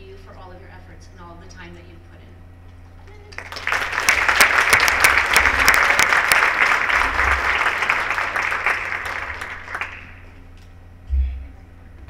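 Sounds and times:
audience applause: 3.3 - 10.3.

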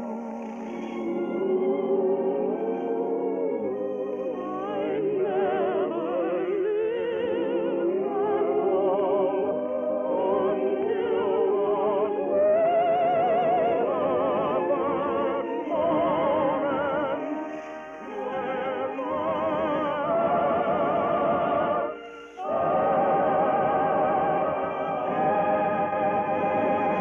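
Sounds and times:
operatic singing: 0.0 - 27.0
orchestral accompaniment: 15.3 - 27.0.

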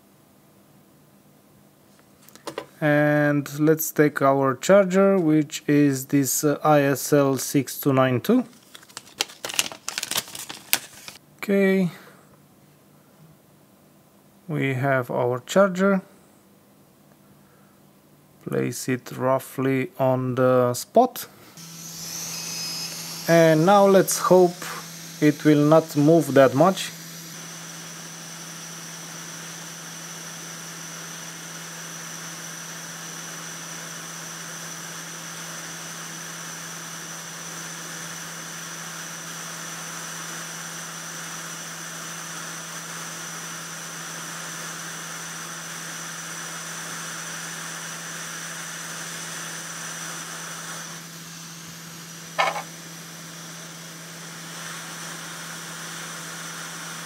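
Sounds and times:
hot air blower hissing: 21.4 - 57.0.

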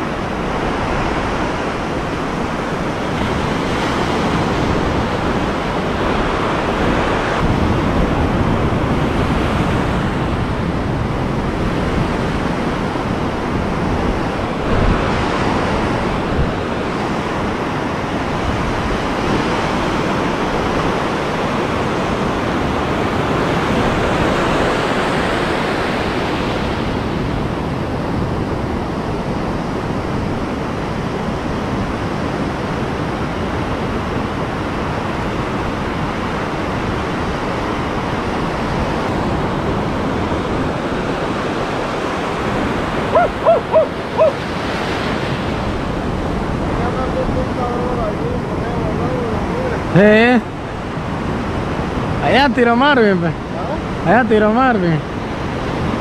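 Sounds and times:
ocean waves breaking: 0.0 - 56.0.

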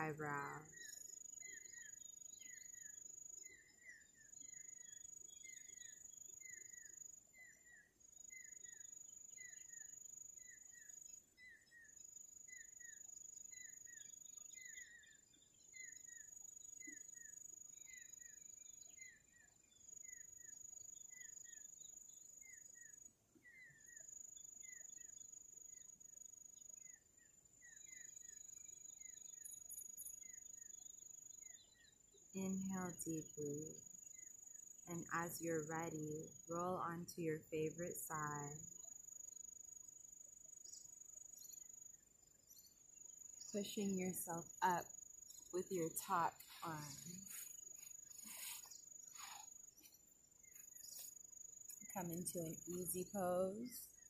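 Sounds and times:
high-pitched insect trill: 38.6 - 54.0.

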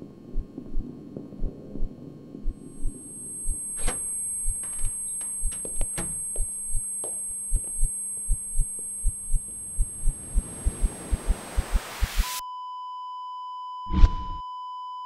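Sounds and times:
heartbeat thumps: 0.0 - 3.6, 4.4 - 12.3
steady low hum: 0.0 - 12.2
rising hiss: 10.2 - 12.3.

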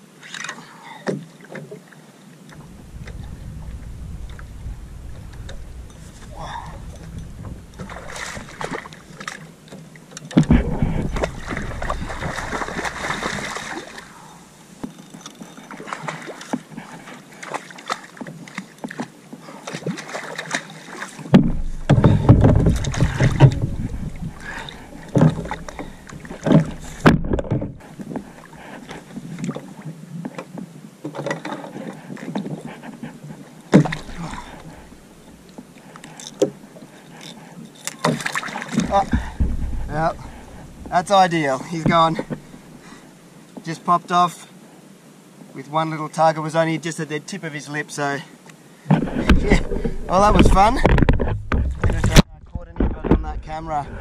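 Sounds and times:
rushes of noise: 2.6 - 9.2, 38.8 - 42.8
lapping water: 2.6 - 9.4, 10.4 - 14.4, 19.4 - 27.1, 31.7 - 43.0
clicks and knocks from fishing gear: 21.3 - 28.2, 30.2 - 32.7, 48.9 - 53.5.

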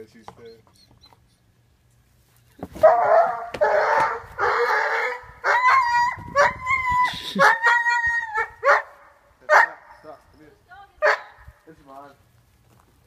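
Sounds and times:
dog whining: 0.4 - 1.5.

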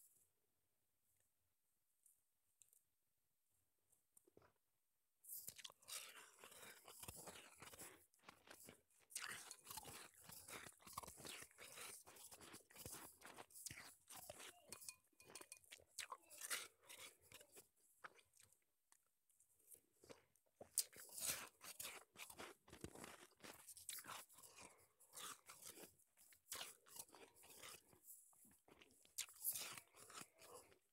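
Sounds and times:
chewing shaved ice crunches: 5.3 - 19.0, 20.0 - 30.9.

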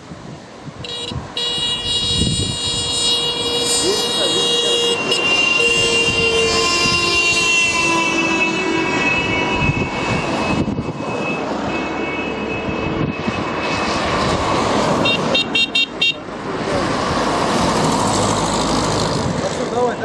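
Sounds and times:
car engines and tyres: 0.0 - 20.0
car horns honking: 0.8 - 13.8, 15.0 - 16.3.

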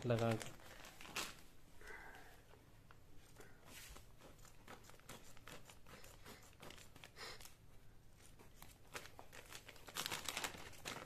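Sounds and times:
plastic wrapping crinkling: 0.0 - 1.5, 8.2 - 11.0.

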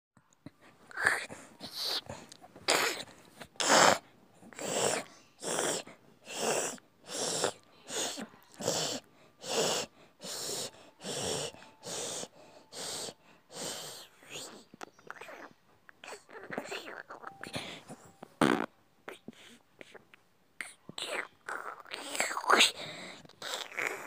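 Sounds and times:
rhythmic breathy wheezing: 0.4 - 24.0.

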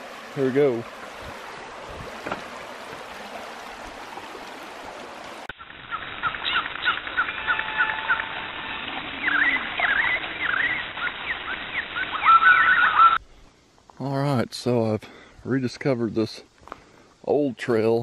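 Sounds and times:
creek water running: 0.0 - 13.2
faint outdoor background: 0.0 - 18.0
bird chirps: 5.6 - 13.2.

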